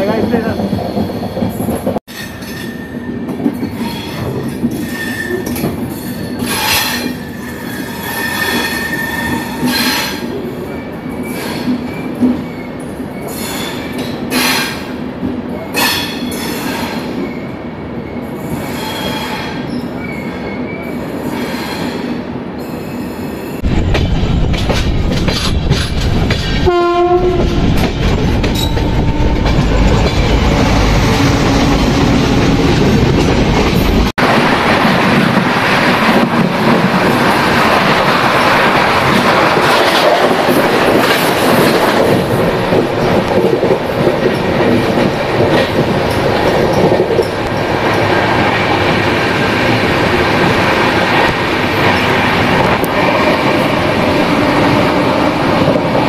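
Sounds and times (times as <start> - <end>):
train wheels rumbling on rails: 0.0 - 56.0
locomotive horn blast: 26.6 - 27.7.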